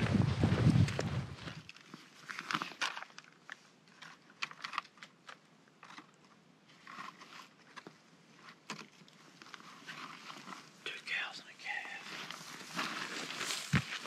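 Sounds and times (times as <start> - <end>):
backpack being rummaged: 0.9 - 3.2, 11.9 - 14.0
plastic wrapper rustling: 1.7 - 5.1.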